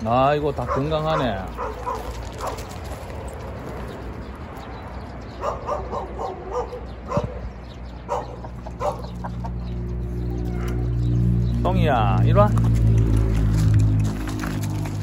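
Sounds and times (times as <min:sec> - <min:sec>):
dog yelping: 0:00.6 - 0:02.6, 0:05.4 - 0:07.5, 0:08.1 - 0:09.2, 0:10.3 - 0:11.0.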